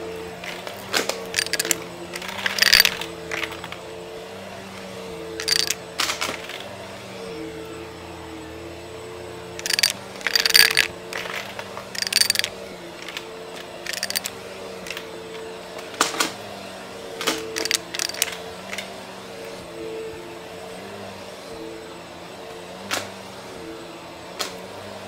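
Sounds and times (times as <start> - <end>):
coins clinking and rattling: 0.7 - 3.0, 5.4 - 5.8, 9.6 - 11.4, 12.0 - 12.5, 13.9 - 14.3, 17.6 - 18.3.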